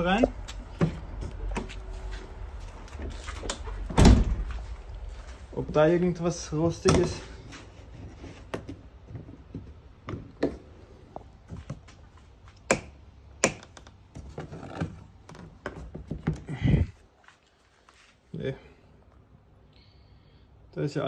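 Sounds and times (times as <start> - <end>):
plastic panels clicking and knocking: 12.7 - 16.5.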